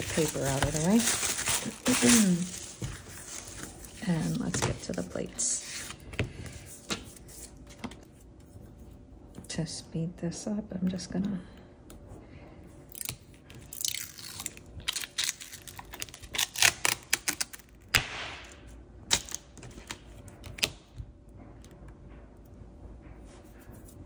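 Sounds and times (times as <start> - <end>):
plastic film crinkling: 0.0 - 5.8, 13.6 - 17.9.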